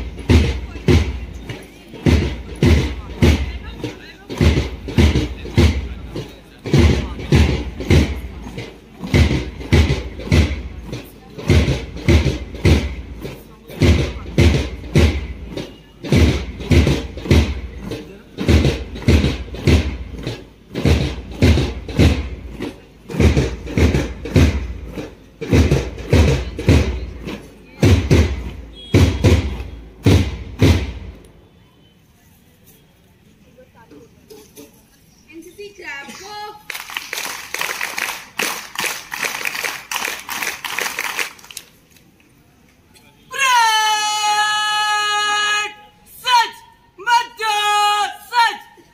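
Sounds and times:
parade drum beating: 0:00.0 - 0:31.5
sharp claps and slaps: 0:36.1 - 0:42.3.

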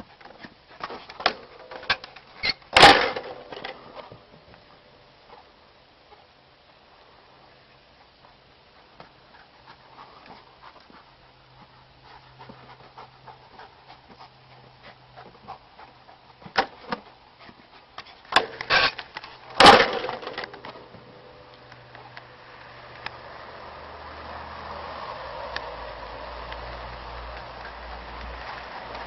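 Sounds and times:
dog panting: 0:08.0 - 0:18.4
wooden board clatter: 0:19.6 - 0:20.8.

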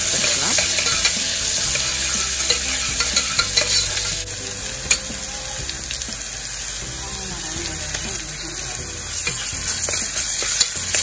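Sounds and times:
metal spoon scraping pan: 0:00.0 - 0:04.2, 0:09.1 - 0:11.0
food sizzling in hot oil: 0:00.0 - 0:11.0.

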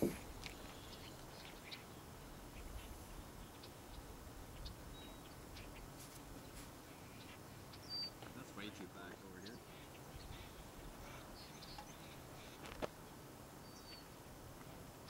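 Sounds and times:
faint outdoor hiss: 0:00.0 - 0:15.0
small birds chirping: 0:00.0 - 0:15.0.

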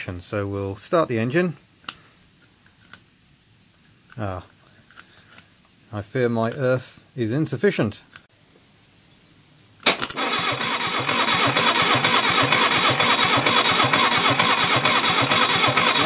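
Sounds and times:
engine cranking on starter motor: 0:09.8 - 0:16.0
sharp starter click: 0:09.8 - 0:16.0.

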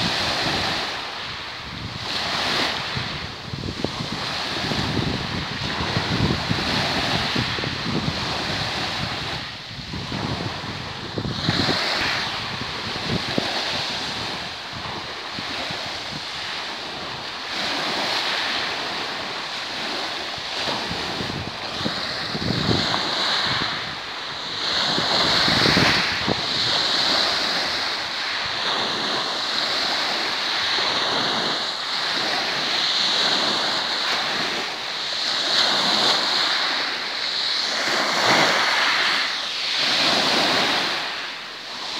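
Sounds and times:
wind buffeting microphone: 0:00.0 - 0:41.2
waves breaking on pebbles: 0:00.0 - 0:41.9.

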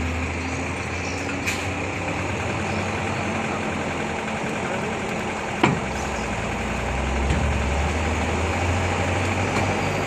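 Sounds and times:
heavy vehicle engine idling: 0:00.0 - 0:10.0.

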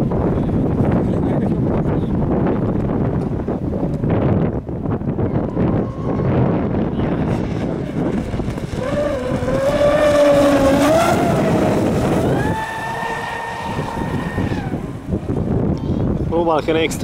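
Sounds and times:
wind and water hiss: 0:00.0 - 0:17.0
model boat motor whine: 0:05.4 - 0:15.3.

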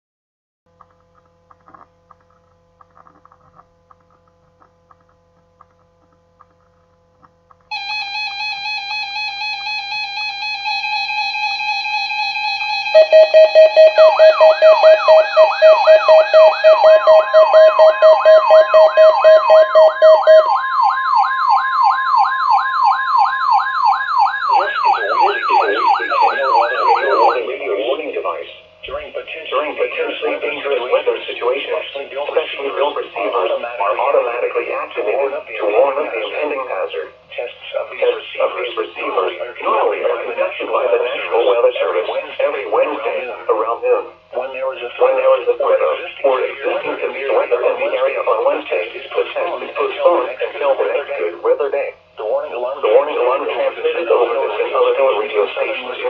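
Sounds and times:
steady electronic tone: 0:07.7 - 0:21.6
rapid electronic beeping: 0:07.7 - 0:22.2, 0:24.2 - 0:56.0
siren-like warble: 0:07.7 - 0:37.1.

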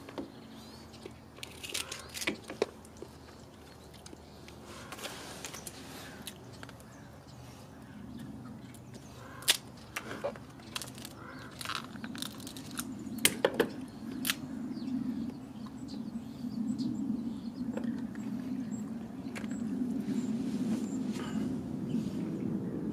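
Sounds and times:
shears crunching crab shell: 0:01.4 - 0:02.6, 0:09.4 - 0:13.4.

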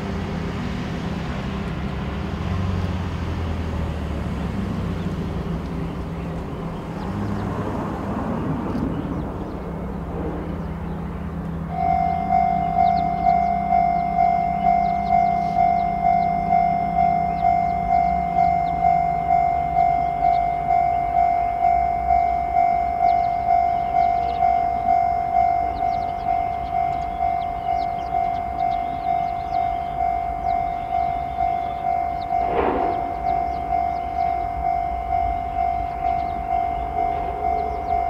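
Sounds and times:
low rumble: 0:08.1 - 0:20.5, 0:32.2 - 0:38.0
level crossing alarm ringing: 0:11.6 - 0:38.0.

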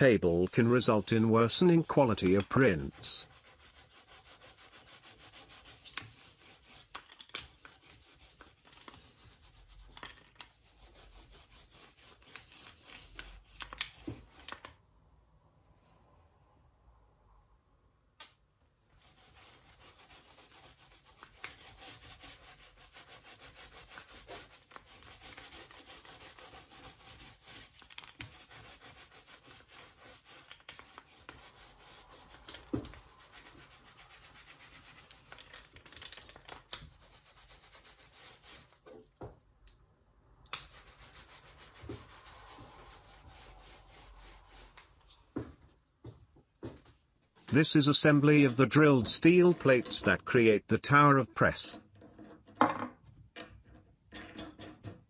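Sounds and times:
rubbing on wooden table: 0:00.0 - 0:14.7, 0:19.0 - 0:39.4, 0:40.6 - 0:45.5.

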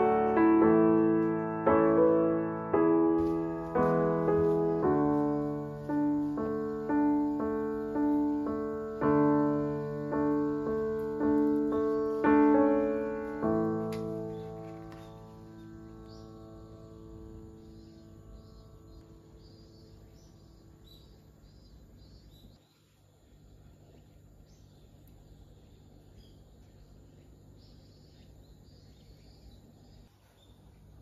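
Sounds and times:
slow piano music: 0:00.0 - 0:22.4.

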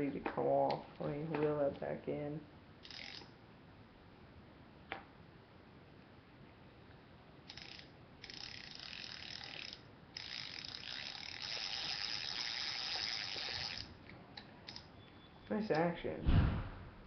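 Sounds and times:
fishing reel whirring and clicking: 0:02.8 - 0:03.3, 0:07.5 - 0:13.9.

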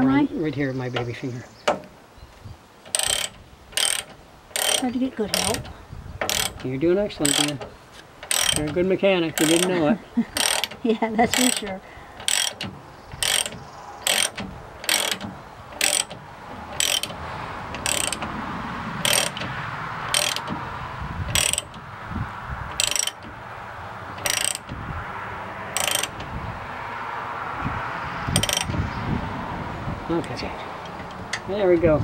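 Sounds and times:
ratchet wrench clicking: 0:02.8 - 0:05.6, 0:06.2 - 0:08.8, 0:09.4 - 0:09.7, 0:10.4 - 0:17.2, 0:17.8 - 0:18.3, 0:19.0 - 0:19.5, 0:20.1 - 0:20.6, 0:21.3 - 0:21.9, 0:22.7 - 0:23.3, 0:24.2 - 0:24.8, 0:25.7 - 0:26.2, 0:28.3 - 0:28.8.

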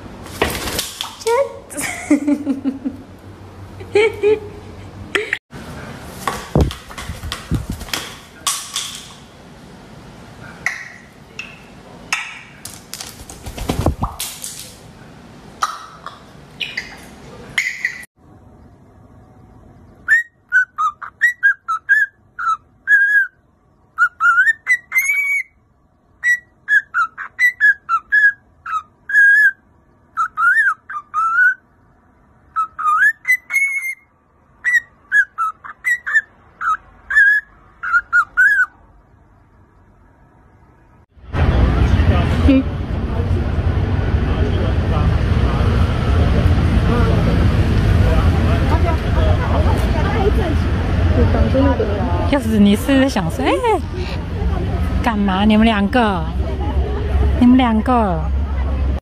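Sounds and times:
knocks and rustling: 0:06.2 - 0:09.3
cockatiel whistling: 0:20.1 - 0:23.4, 0:24.0 - 0:25.5, 0:26.2 - 0:29.6, 0:30.2 - 0:31.6, 0:32.5 - 0:34.0, 0:34.6 - 0:38.7.

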